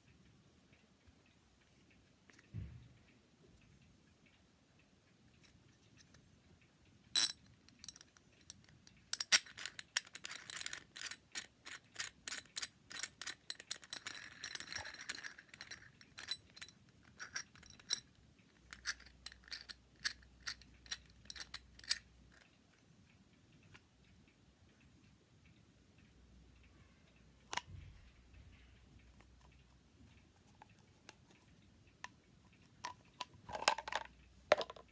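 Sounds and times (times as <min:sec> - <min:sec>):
plastic parts clicking: 0:32.8 - 0:34.9.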